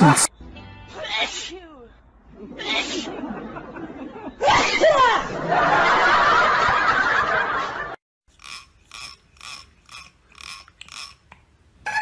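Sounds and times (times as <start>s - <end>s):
thumb strumming comb teeth: 8.4s - 11.4s.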